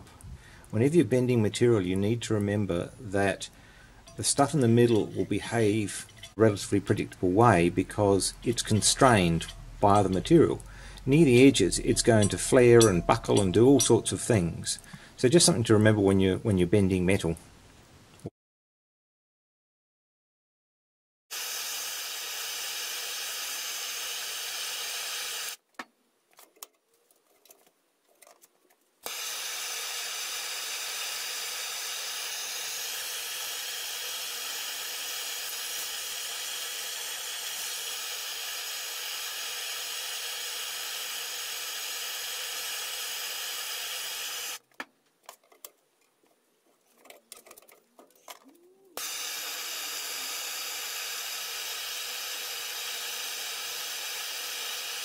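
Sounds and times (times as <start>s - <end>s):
gas torch hissing: 21.3s - 25.6s, 29.0s - 44.6s, 49.0s - 55.0s.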